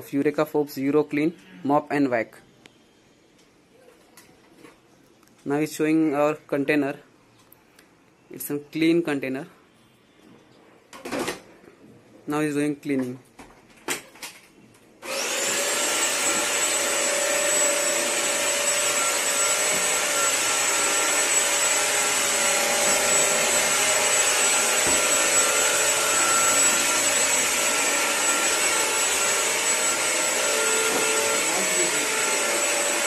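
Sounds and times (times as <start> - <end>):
vacuum cleaner motor whine: 15.0 - 33.0.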